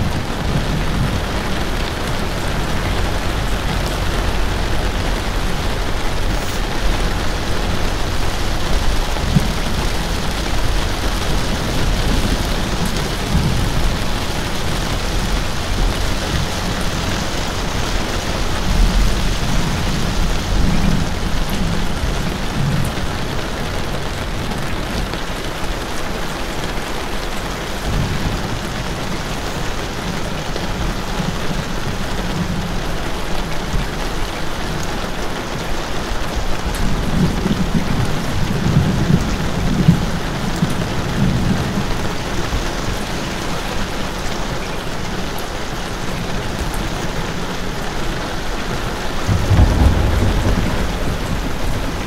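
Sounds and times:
steady rain falling: 0:00.0 - 0:52.0
low rumbling: 0:48.8 - 0:52.0.

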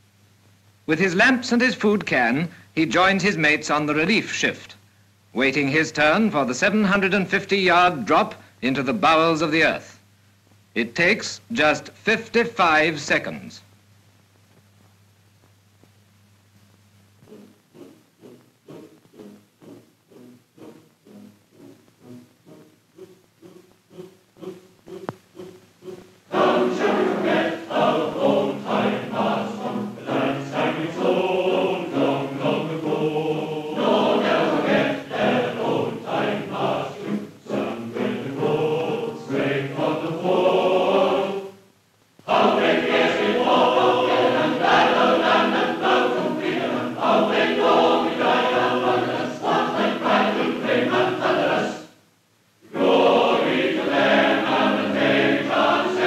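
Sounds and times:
choir singing: 0:17.3 - 0:41.6, 0:42.2 - 0:52.0, 0:52.6 - 0:56.0.

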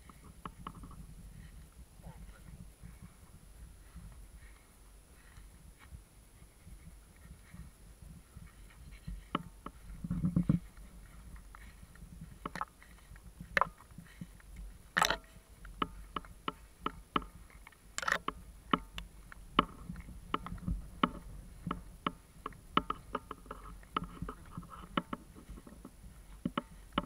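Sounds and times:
low wind rumble: 0:00.0 - 0:27.0
light clicks and knocks: 0:08.9 - 0:27.0.

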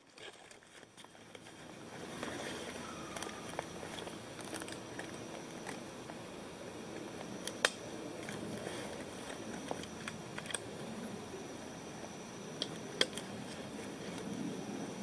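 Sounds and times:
clothing and gear rustling: 0:00.0 - 0:05.8
steady hiss: 0:00.0 - 0:15.0.

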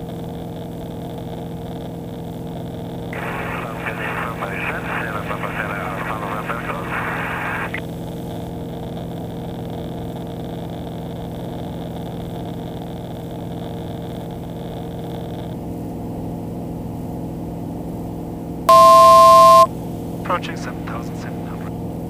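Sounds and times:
aircraft engine droning: 0:03.2 - 0:07.8.

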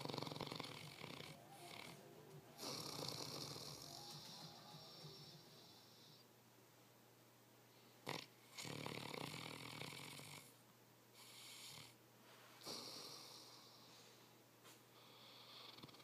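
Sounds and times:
dog snorting: 0:00.0 - 0:01.9, 0:02.6 - 0:03.9, 0:12.6 - 0:13.5
dog snoring: 0:00.0 - 0:02.0, 0:02.6 - 0:06.2, 0:08.0 - 0:10.6, 0:11.2 - 0:12.0, 0:12.6 - 0:14.0, 0:15.0 - 0:16.0.

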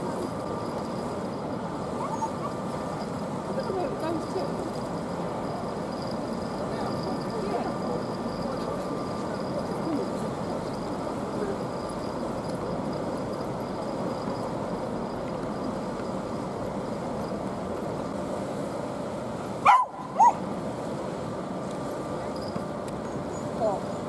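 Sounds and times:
outdoor background noise: 0:00.0 - 0:24.0
dog barking: 0:19.6 - 0:20.4.

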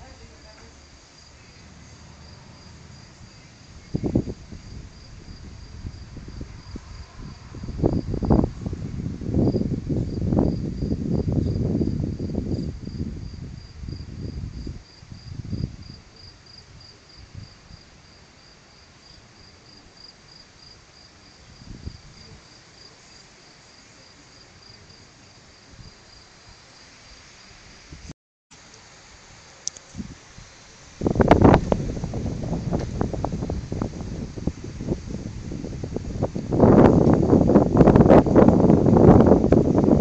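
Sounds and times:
thunder rumbling: 0:00.0 - 0:16.0, 0:31.0 - 0:40.0
cricket chirping: 0:00.0 - 0:26.9.

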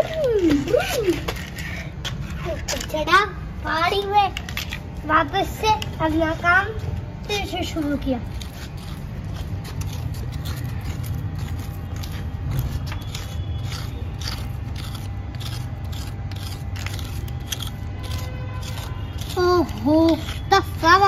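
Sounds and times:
hand scraping dry soil: 0:08.1 - 0:21.0.

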